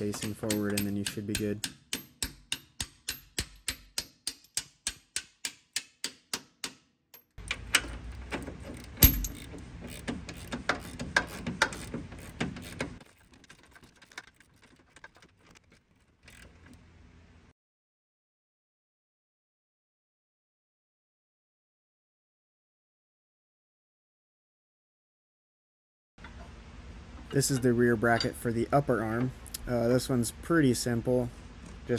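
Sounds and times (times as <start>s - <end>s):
hammer tapping steel bolt: 0.0s - 7.9s
ratchet clicking: 7.2s - 16.8s
sharp metal clank: 9.0s - 9.5s.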